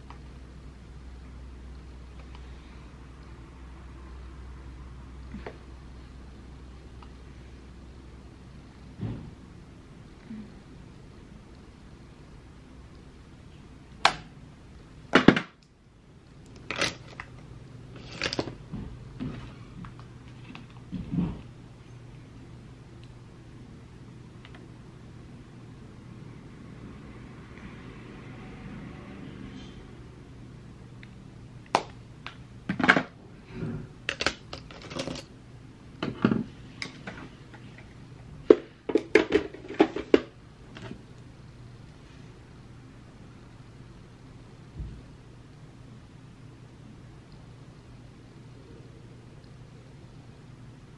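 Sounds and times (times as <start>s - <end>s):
plastic containers clicking and clacking: 38.9s - 40.3s.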